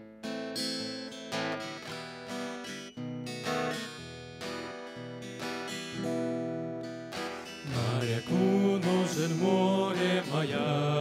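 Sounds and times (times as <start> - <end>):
acoustic guitar strumming: 0.1 - 11.0
men singing together: 7.7 - 11.0.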